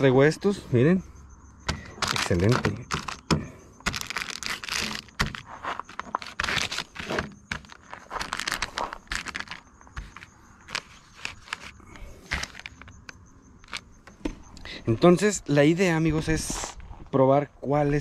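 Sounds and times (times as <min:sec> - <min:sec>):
plastic packets crinkling: 0:01.9 - 0:12.8.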